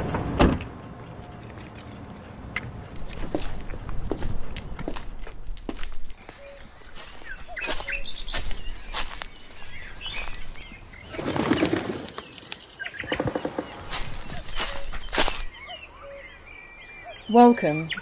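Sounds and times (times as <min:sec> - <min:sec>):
birds chirping: 0:01.1 - 0:18.0
wings flapping: 0:11.0 - 0:15.5.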